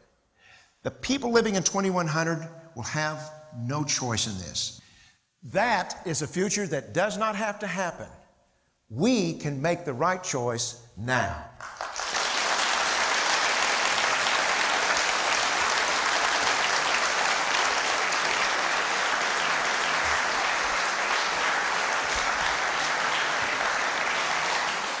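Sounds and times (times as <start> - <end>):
audience applauding: 11.6 - 25.0.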